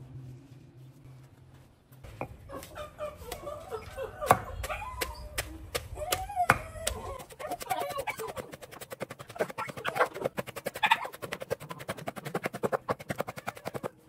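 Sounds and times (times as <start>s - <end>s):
chickens clucking: 2.2s - 14.0s
pestle pounding in stone mortar: 4.3s - 13.9s.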